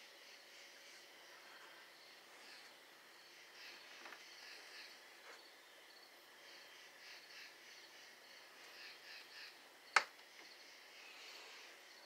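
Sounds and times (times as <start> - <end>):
crickets chirping faintly: 0.0 - 12.0.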